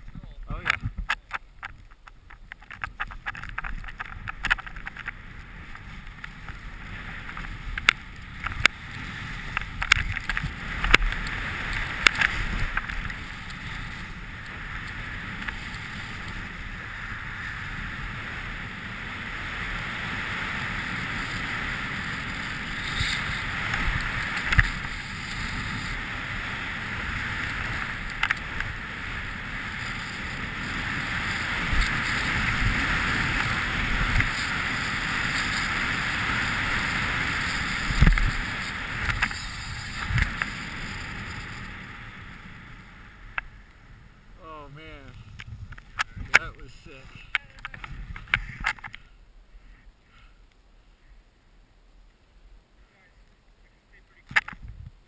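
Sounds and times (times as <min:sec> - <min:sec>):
skis hissing through snow: 0:05.2 - 0:43.3
sharp clicks and knocks: 0:54.3 - 0:54.7.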